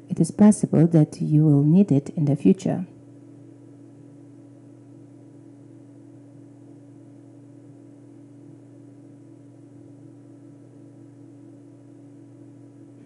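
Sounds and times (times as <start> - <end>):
low steady two-tone hum: 0.0 - 13.0.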